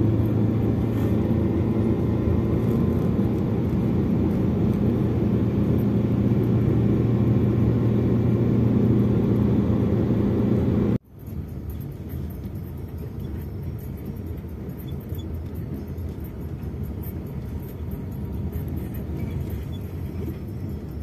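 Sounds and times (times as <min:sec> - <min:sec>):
car cabin rumble: 0:00.0 - 0:21.0.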